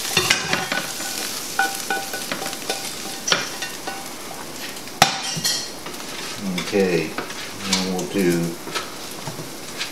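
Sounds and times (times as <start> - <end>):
metal tongs clinking on pan: 0.0 - 4.2, 5.0 - 5.7
glaze sizzling in a pan: 0.0 - 9.9.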